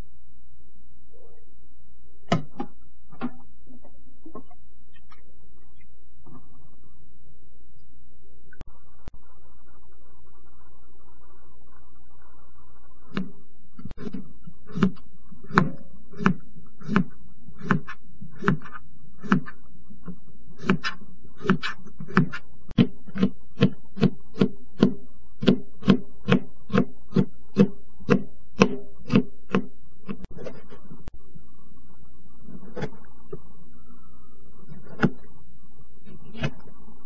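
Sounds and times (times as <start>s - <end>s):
steady low hum: 0.0s - 37.0s
knife chopping on plastic board: 13.9s - 19.6s, 20.6s - 30.3s.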